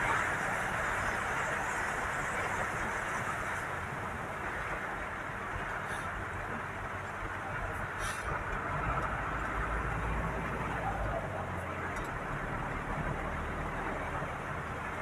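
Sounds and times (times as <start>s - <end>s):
rain hiss and spray: 0.0s - 6.8s, 7.8s - 8.6s
engine and tyre noise: 0.0s - 15.0s.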